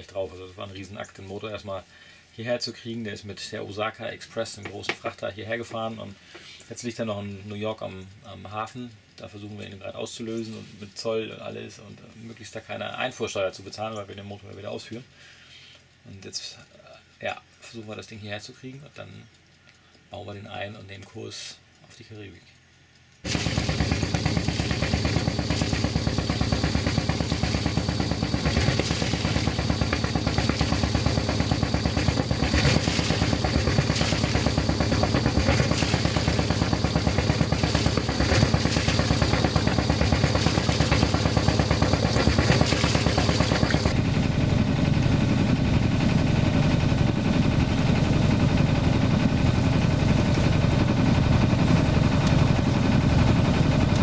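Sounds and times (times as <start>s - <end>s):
diesel boat engine chugging: 23.2s - 54.0s
thin high whine: 23.3s - 47.4s.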